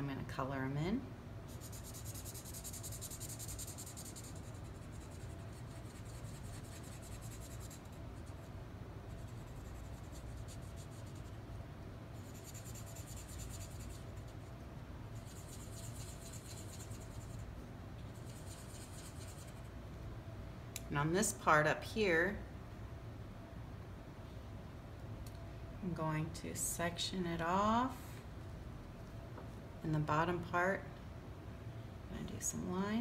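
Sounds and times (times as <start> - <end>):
marker scratching on paper: 1.5 - 8.5, 9.1 - 11.3, 12.2 - 14.4, 15.2 - 17.4, 18.2 - 19.7.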